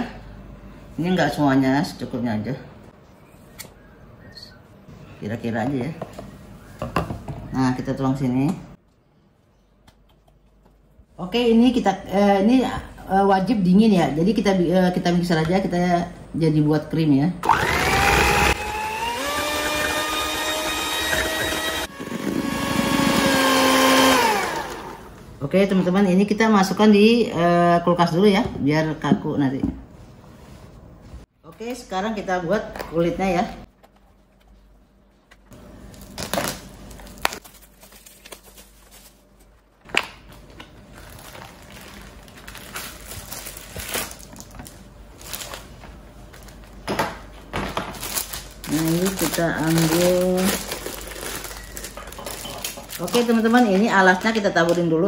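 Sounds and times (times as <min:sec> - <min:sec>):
electric hand mixer whining: 0:17.4 - 0:25.1
plastic bag crinkling: 0:40.8 - 0:46.8, 0:47.9 - 0:54.9
scissors cutting plastic wrap: 0:48.0 - 0:54.7.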